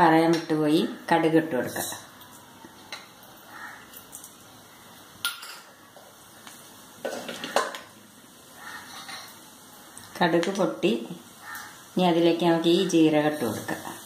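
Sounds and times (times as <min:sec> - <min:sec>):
steel bowl clinking on pan: 0:05.2 - 0:05.7.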